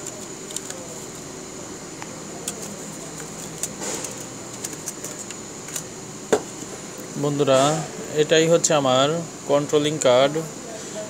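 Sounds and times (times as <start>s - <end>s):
plastic clicks and scrapes: 0.0s - 0.8s, 2.4s - 5.9s.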